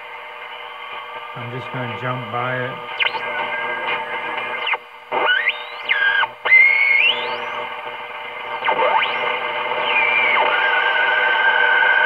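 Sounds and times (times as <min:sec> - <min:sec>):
radio static hiss: 0:00.0 - 0:12.0
radio whistles sweeping in pitch: 0:03.0 - 0:03.3, 0:04.6 - 0:07.6, 0:08.6 - 0:12.0.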